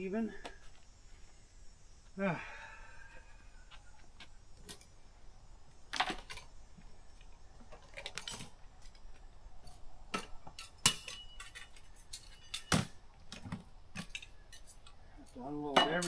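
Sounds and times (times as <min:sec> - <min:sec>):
dishes and utensils clinking: 0:15.7 - 0:16.0.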